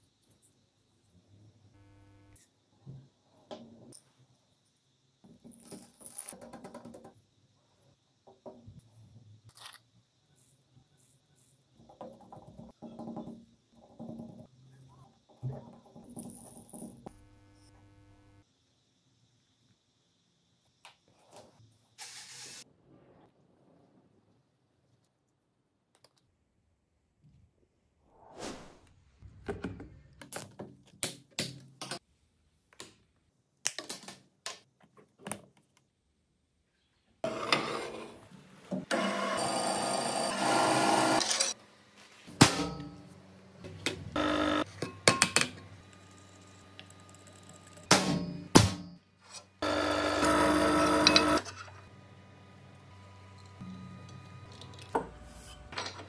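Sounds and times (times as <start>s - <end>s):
drill boring into metal: 38.9s - 41.5s, 49.6s - 51.4s
drill press motor whine: 38.9s - 41.5s, 44.2s - 44.7s, 49.6s - 55.3s.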